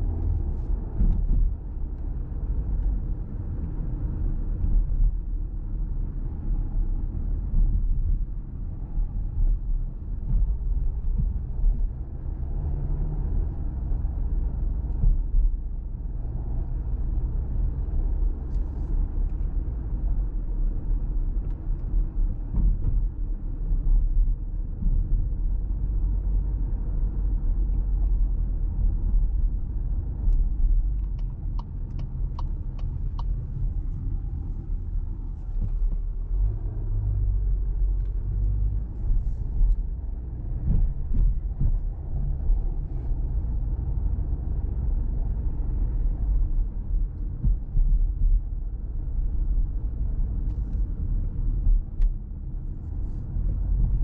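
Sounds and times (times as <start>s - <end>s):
car cabin engine and tyre rumble: 0.0s - 54.0s
light ticks: 30.2s - 34.5s.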